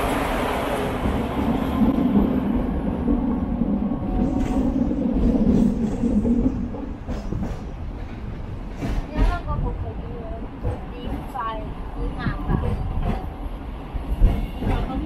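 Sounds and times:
tram wheels rumbling on rails: 0.0 - 15.0.

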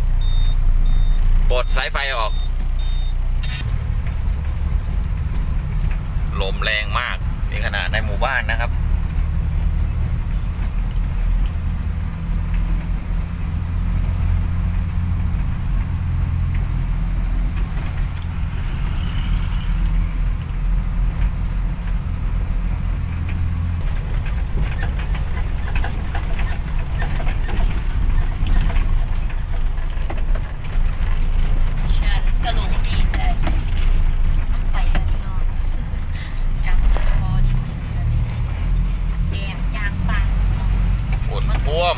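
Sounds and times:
truck diesel engine hum: 0.0 - 41.9
cab rattling: 22.7 - 41.9.

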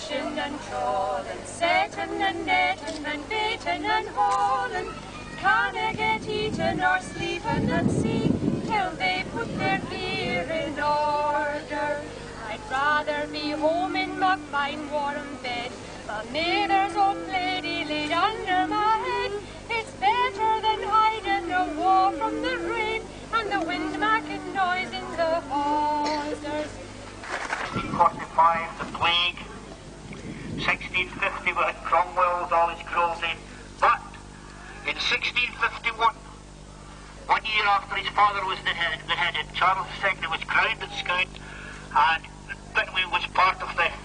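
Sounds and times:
adults and children singing: 0.0 - 26.8.

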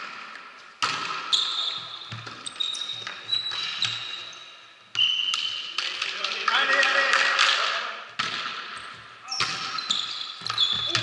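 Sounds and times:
shoe squeaks: 1.3 - 5.8, 8.8 - 11.0.

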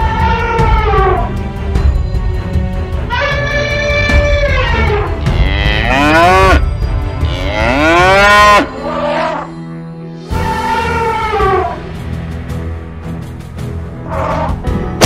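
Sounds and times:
cattle mooing: 3.2 - 6.6, 7.2 - 9.5.

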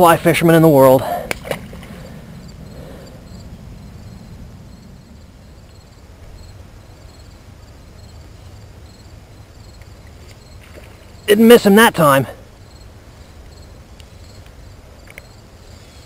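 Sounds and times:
faint insect chirping: 0.0 - 16.0
low steady rumble: 0.2 - 10.2.

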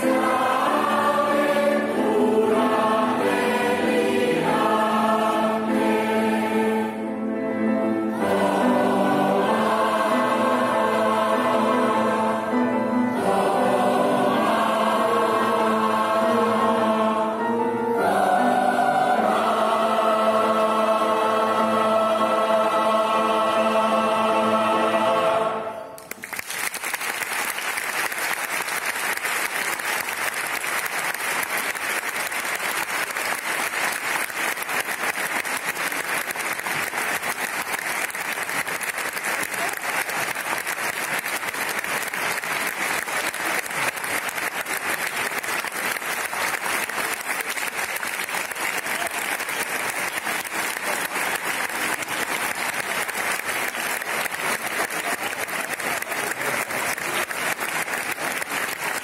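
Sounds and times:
choir holding chord: 0.0 - 26.1
audience applause: 26.0 - 59.0.

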